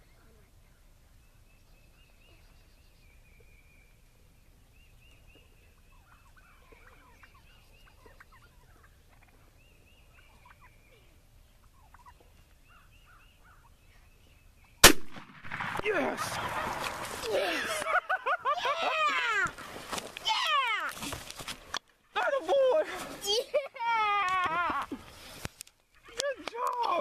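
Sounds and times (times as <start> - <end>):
turkeys gobbling faintly: 1.8 - 14.2.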